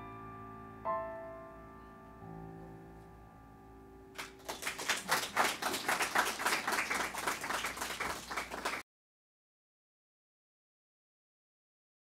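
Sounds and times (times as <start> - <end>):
audience applause: 4.2 - 8.8.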